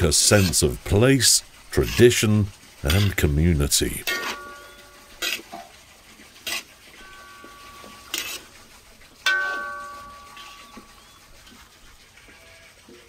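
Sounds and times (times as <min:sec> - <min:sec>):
metal utensil knocking on pot: 0:09.3 - 0:10.6.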